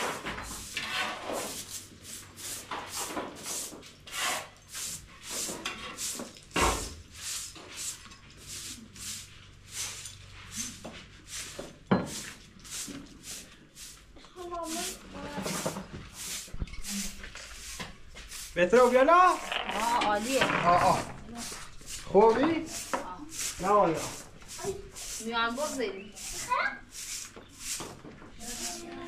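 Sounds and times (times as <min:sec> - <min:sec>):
rhythmic scraping strokes: 0:14.5 - 0:27.8, 0:28.4 - 0:29.0.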